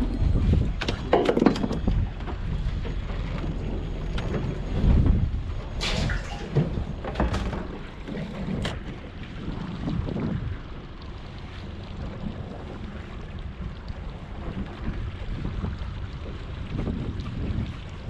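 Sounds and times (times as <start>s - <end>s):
water sloshing: 0.0s - 18.0s
wind buffeting microphone: 0.0s - 18.0s.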